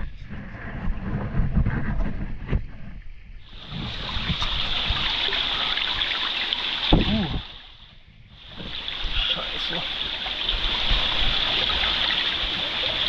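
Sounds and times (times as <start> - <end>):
water pouring and spraying: 3.4 - 7.8, 8.4 - 13.0.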